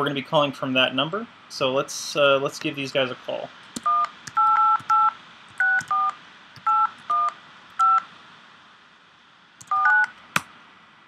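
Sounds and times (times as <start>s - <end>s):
keypad dialing tones: 3.8s - 8.0s, 9.6s - 10.1s.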